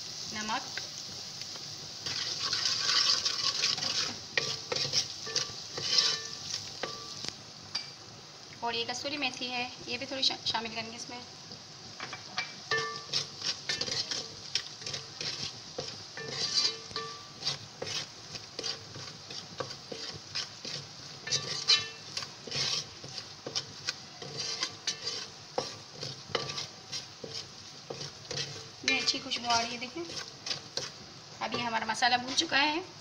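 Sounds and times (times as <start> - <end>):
spices and onions sizzling: 0.0 - 33.0
spatula scraping metal pot: 2.0 - 7.0, 12.7 - 32.5.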